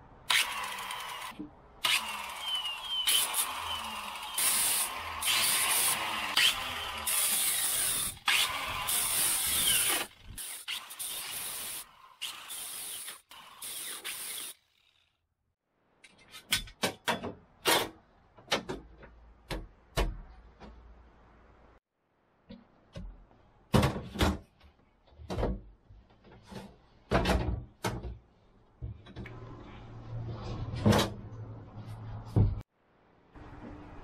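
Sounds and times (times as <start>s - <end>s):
angle grinder whining: 0.3s - 14.6s.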